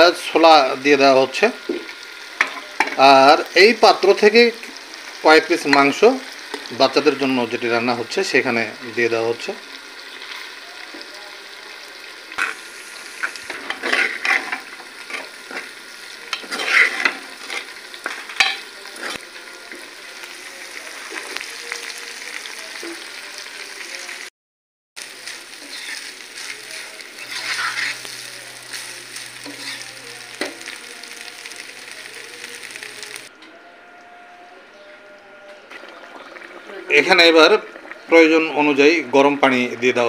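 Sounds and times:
rice sizzling in oil: 0.0s - 24.3s, 25.0s - 33.3s
metal spoon scraping pot: 13.5s - 15.3s, 16.3s - 19.2s, 27.2s - 28.1s.

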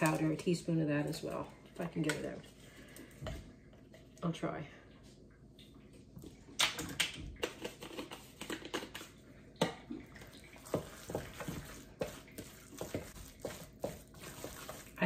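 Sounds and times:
squishing: 6.2s - 15.0s
spoon stirring in metal bowl: 7.4s - 15.0s.

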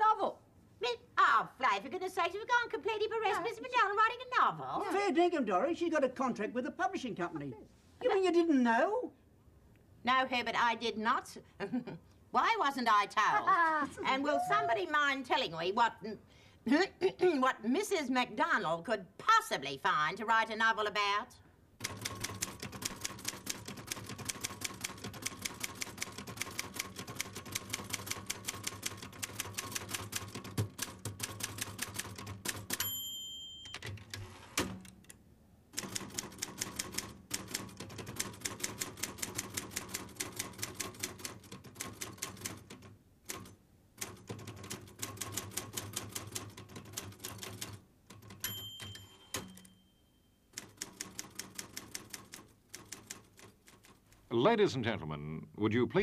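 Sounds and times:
typewriter bell ringing: 32.7s - 34.1s, 48.3s - 50.9s.

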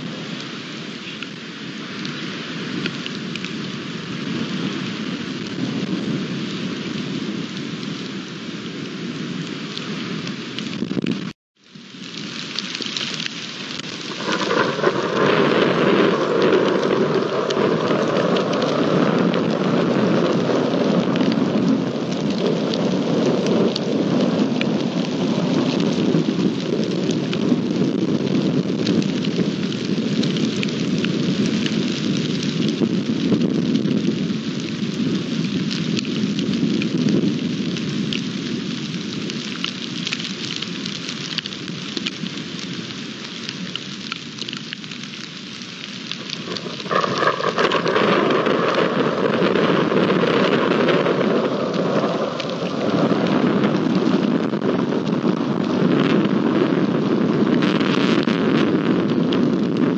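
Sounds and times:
heavy rain pouring on earth: 0.0s - 59.9s
thunder rumbling: 12.4s - 39.9s, 45.9s - 59.9s.

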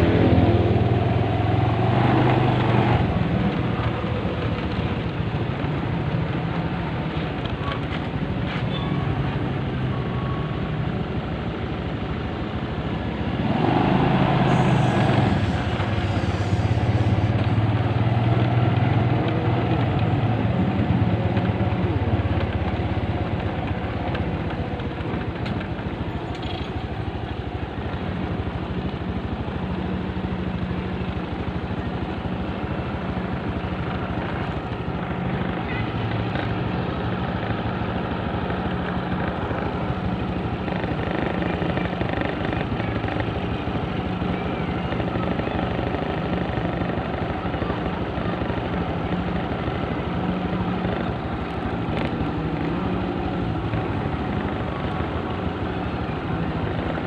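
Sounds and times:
motor engine running: 11.7s - 57.0s.

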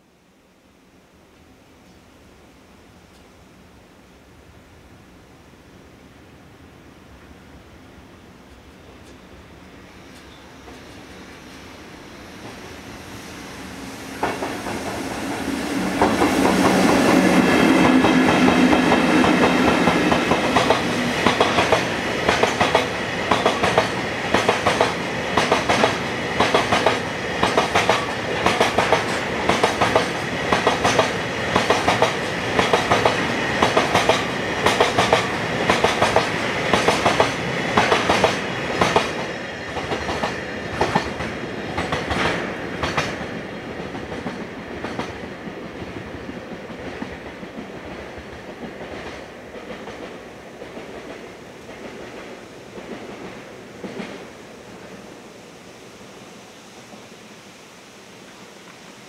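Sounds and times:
electric locomotive humming: 5.7s - 59.0s
train wheels clacking over rail joints: 16.0s - 54.3s.

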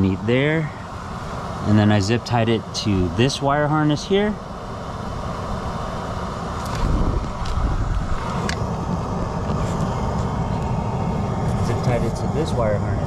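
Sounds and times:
steady rumbling noise: 0.0s - 13.0s.

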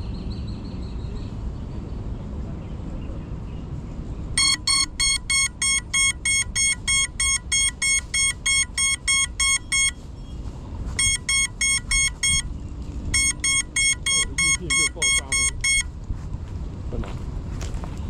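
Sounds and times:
rapid high piercing beeps: 4.4s - 10.3s, 11.0s - 12.5s, 13.1s - 15.9s.

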